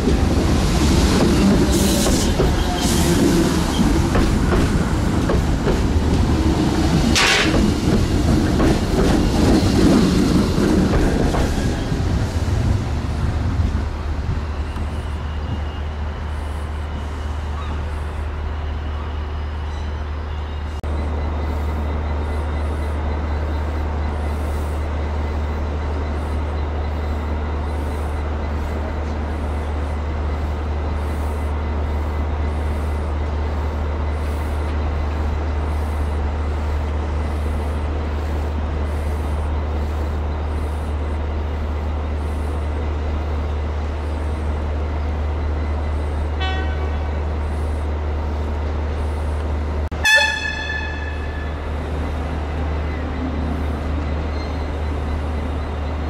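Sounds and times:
train low rumble: 0.0 - 56.0
train wheels clattering: 0.2 - 11.9.

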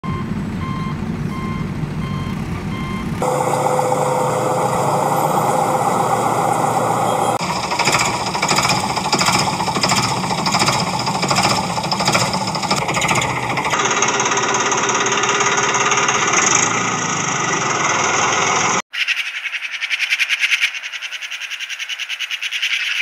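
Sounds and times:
reversing alarm beeping: 0.0 - 14.1
low engine rumble: 0.0 - 18.8
steady machine whine: 3.1 - 18.8
rapid rhythmic clatter: 7.4 - 16.4.

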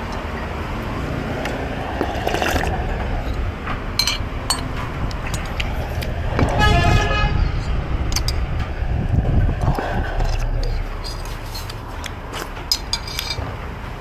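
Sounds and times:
street traffic rumble: 0.0 - 14.0
vehicle horn honking: 6.4 - 7.6.

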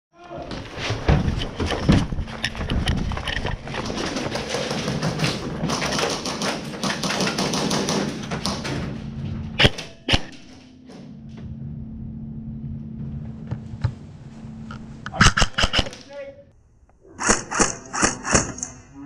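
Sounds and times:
footsteps: 0.2 - 9.6, 12.6 - 15.7
gear clattering: 1.0 - 9.7.

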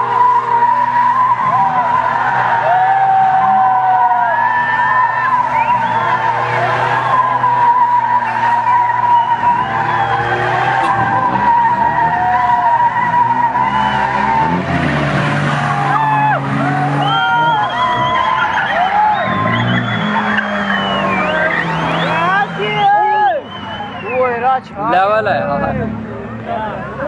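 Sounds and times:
tyres squealing: 0.0 - 25.0
car engine running hard: 0.0 - 27.0.

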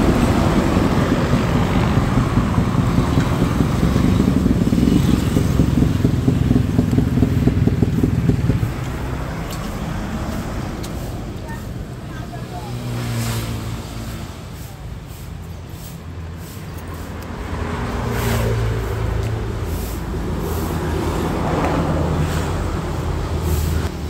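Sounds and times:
motorcycle engine running: 0.0 - 13.2.

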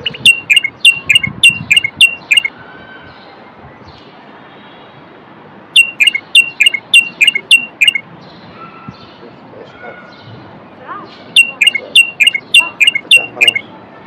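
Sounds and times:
bird singing sharp notes: 0.0 - 2.5, 5.8 - 9.2, 11.3 - 13.7.

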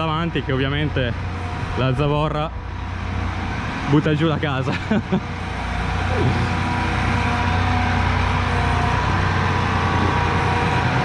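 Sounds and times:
steady whine: 0.0 - 11.0
tractor diesel engine running: 0.0 - 11.0.

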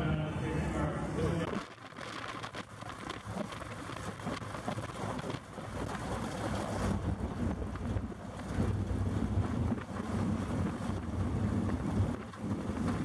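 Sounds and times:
race car engines droning: 0.0 - 4.6
wind buffeting microphone: 0.0 - 13.0.

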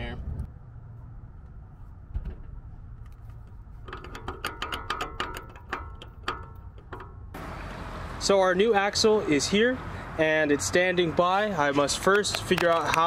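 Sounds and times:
metallic clicking from axle joint: 3.0 - 7.4.

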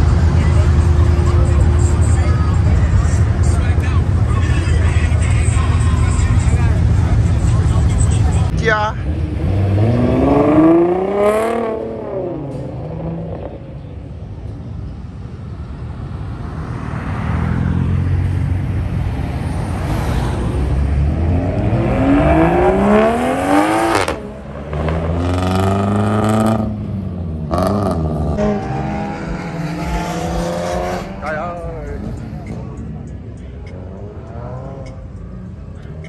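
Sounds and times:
low engine rumble: 0.0 - 9.5, 25.8 - 36.0
car engines revving away: 0.0 - 36.0.

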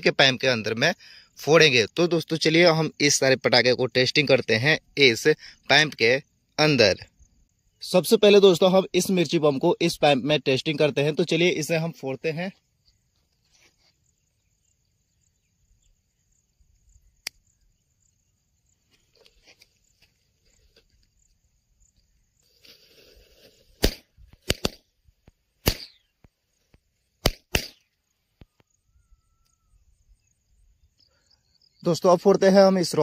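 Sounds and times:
firecracker fuse hiss: 22.4 - 24.6.

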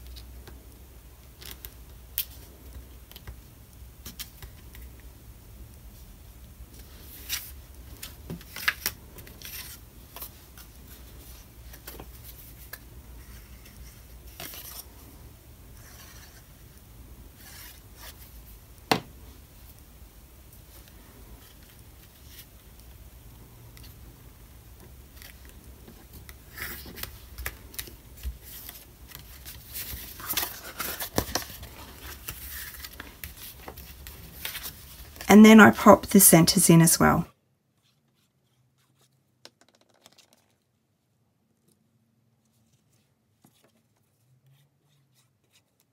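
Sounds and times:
paper rustling: 25.2 - 35.3.

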